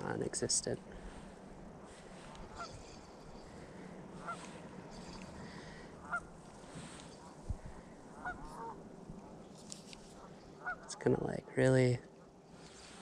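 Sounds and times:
faint goose honks: 0:04.2 - 0:04.6, 0:08.1 - 0:08.8, 0:10.2 - 0:11.0.

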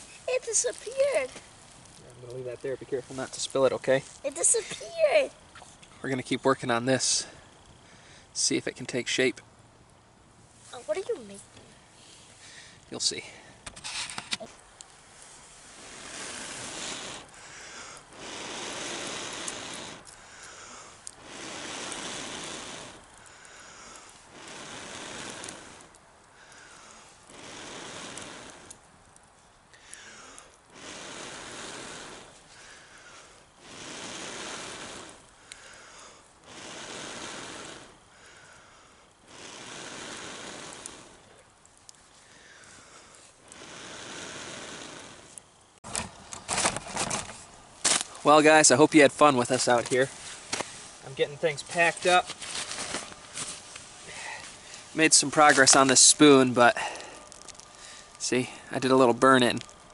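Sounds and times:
person blowing on ember: 0:15.2 - 0:28.9, 0:29.7 - 0:45.7, 0:50.1 - 0:58.7
faint clicks: 0:35.4 - 0:35.7.

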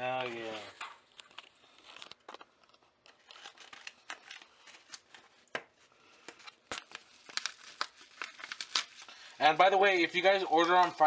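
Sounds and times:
paper envelope rustling: 0:00.1 - 0:11.0.

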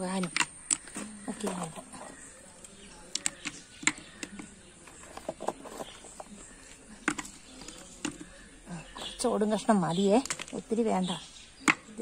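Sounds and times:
faint scratching: 0:01.0 - 0:09.2.

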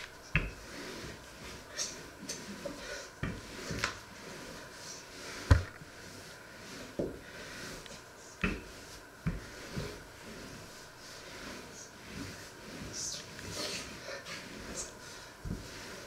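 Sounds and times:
rolling pin rolling dough: 0:00.0 - 0:16.0
dull knocks of wood on wood: 0:05.5 - 0:05.8.

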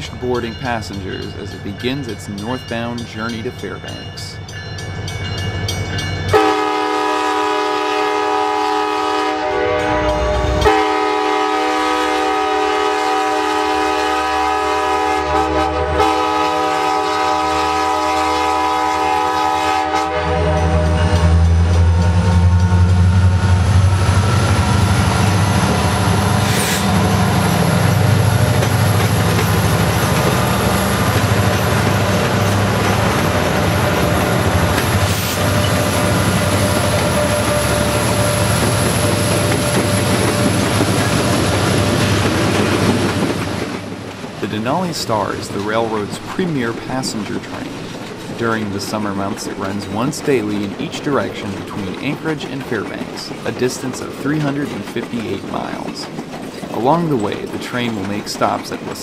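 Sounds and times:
train air horn blasts: 0:06.3 - 0:21.5.

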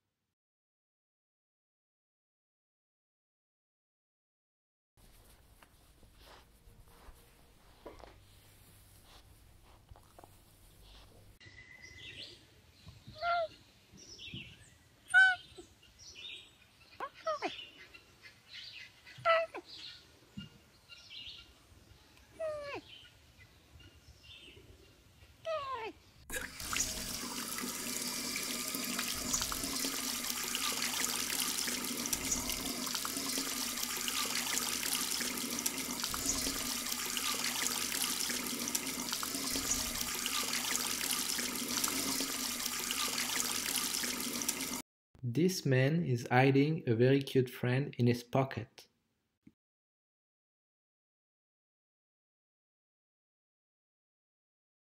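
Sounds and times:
tap water splashing into hands: 0:26.3 - 0:44.8.

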